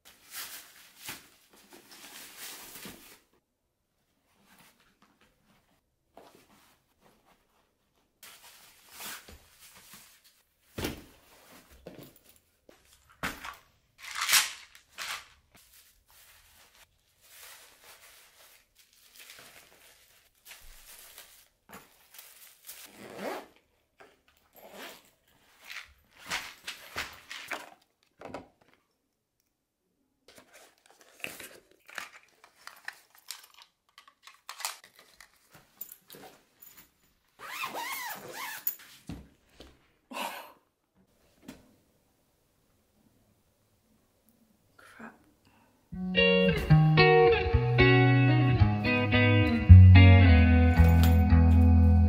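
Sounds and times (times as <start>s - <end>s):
rustling and crinkling while packing: 0.0s - 3.4s, 4.0s - 28.8s, 30.3s - 40.0s.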